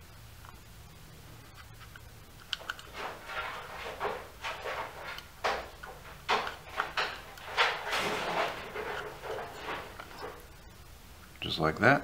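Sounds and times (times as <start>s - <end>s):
plastic clicks and scrapes: 1.6s - 10.4s.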